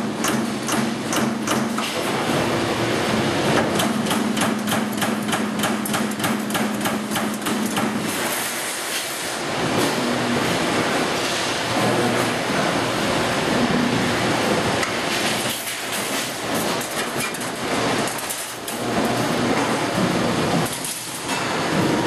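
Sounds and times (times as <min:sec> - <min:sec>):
machine hum: 0:09.4 - 0:22.0.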